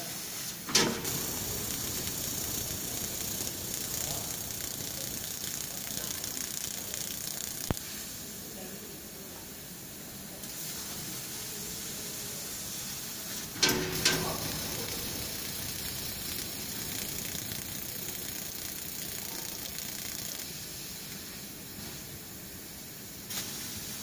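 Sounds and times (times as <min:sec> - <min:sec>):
laser cutter hissing: 0:00.2 - 0:24.0
loud cutting burst: 0:00.8 - 0:07.9, 0:13.6 - 0:20.5.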